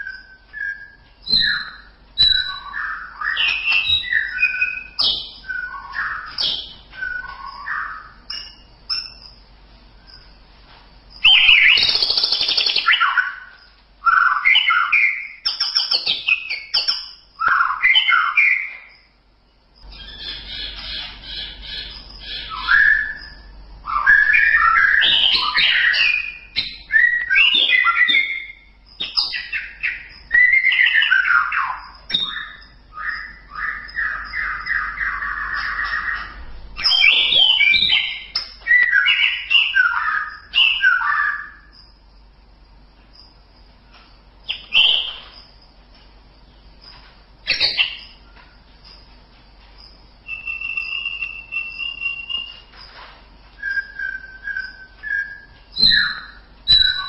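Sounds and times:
bird singing whistled phrases: 0.0 - 9.2, 11.2 - 19.0, 19.9 - 41.7, 44.5 - 45.4, 50.2 - 52.7, 53.6 - 57.0.

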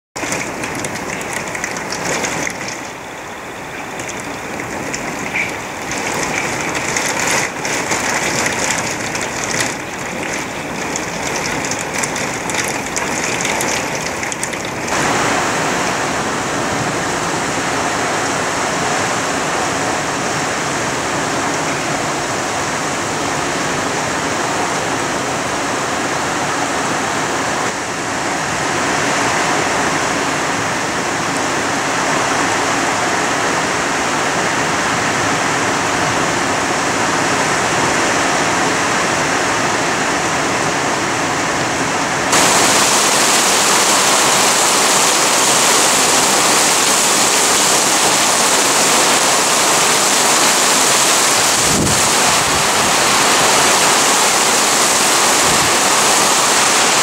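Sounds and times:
heavy rain: 0.0 - 57.0
raindrops striking window: 0.2 - 15.1.

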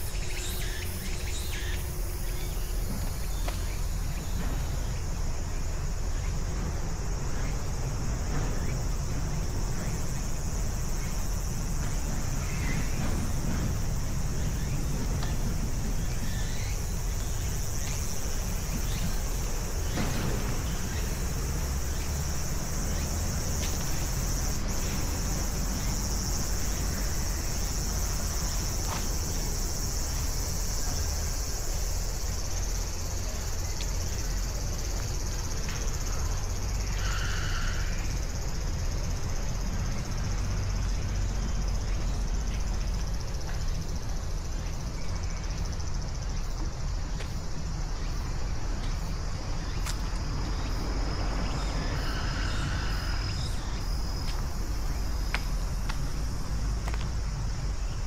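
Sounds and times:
insect chorus: 0.0 - 58.0.

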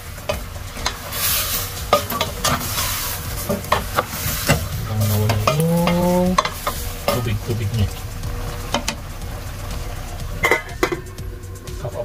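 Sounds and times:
wooden spatula stirring: 0.0 - 11.8
chicken sizzling in a pot: 0.0 - 12.0
metal lid clanking onto pot: 10.4 - 11.2.

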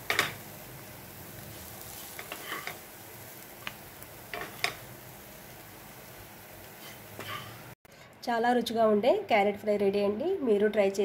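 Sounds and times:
faint hiss from hot pan: 0.0 - 7.8
spatula scraping a pan: 1.8 - 2.8.

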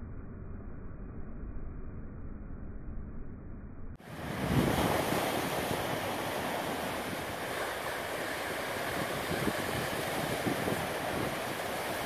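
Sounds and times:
ocean waves crashing on rocks: 4.0 - 12.0.

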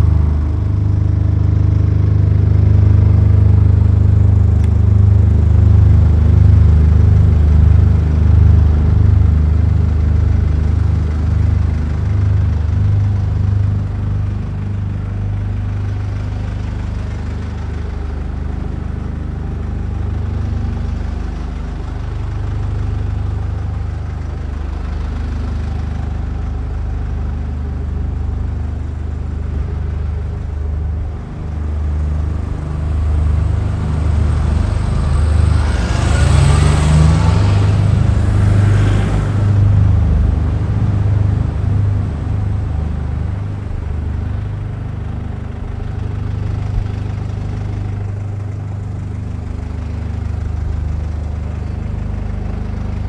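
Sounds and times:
vehicle engine humming: 0.0 - 53.0.

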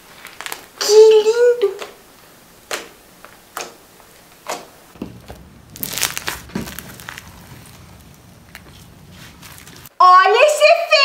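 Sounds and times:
slime squelching and popping: 4.4 - 9.9.

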